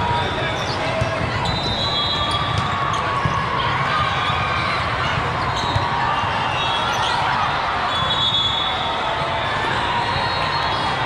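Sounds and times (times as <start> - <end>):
many voices: 0.0 - 11.0
shoe squeaks: 0.4 - 3.1.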